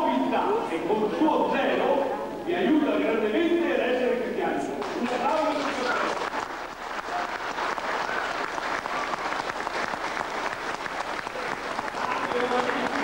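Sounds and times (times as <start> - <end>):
crowd applauding: 4.8 - 13.0.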